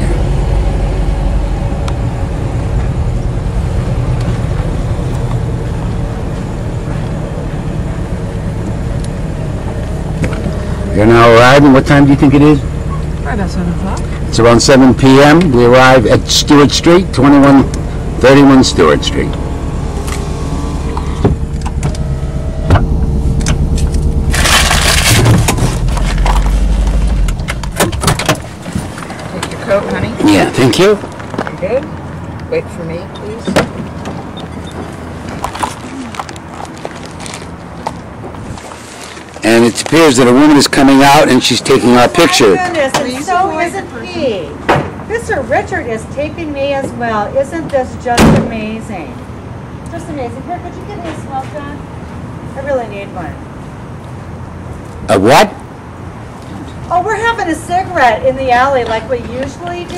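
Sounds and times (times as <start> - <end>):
car engine and road noise: 0.0 - 59.9
loud crunching noise: 22.8 - 29.3, 35.0 - 40.2.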